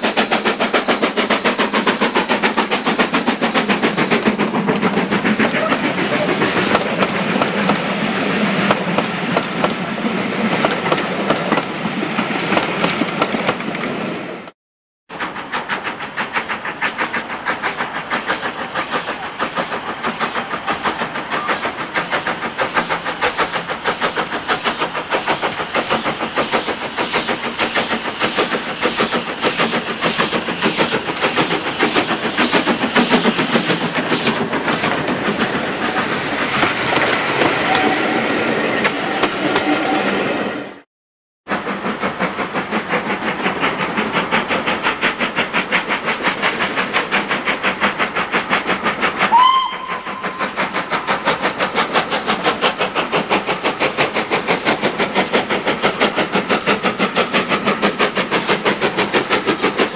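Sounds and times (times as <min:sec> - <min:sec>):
steam locomotive exhaust beats: 0:00.0 - 0:40.8, 0:41.4 - 0:59.9
steam whistle blast: 0:37.6 - 0:40.3, 0:49.3 - 0:50.6.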